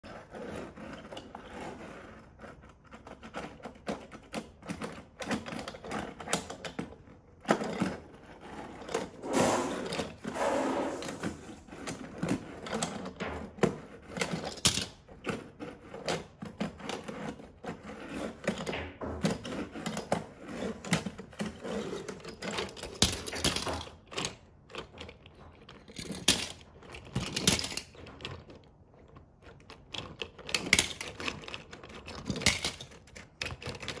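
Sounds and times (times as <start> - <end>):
toy cars clattering on wood: 11.8 - 34.0.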